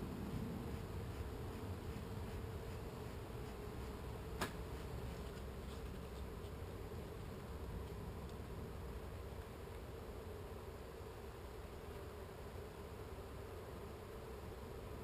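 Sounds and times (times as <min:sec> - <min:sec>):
bees buzzing: 0:00.0 - 0:08.0.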